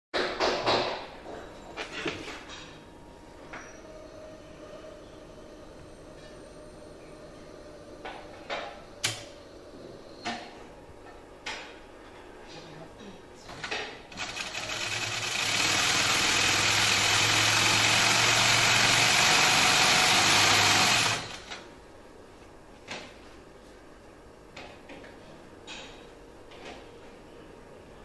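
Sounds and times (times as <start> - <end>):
sewing machine running: 14.1 - 21.6.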